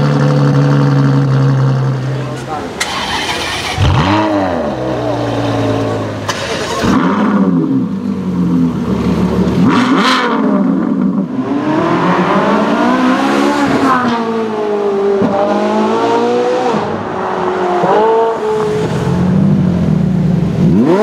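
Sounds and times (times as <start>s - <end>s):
car accelerating: 0.0s - 21.0s
car engine revving: 0.0s - 21.0s.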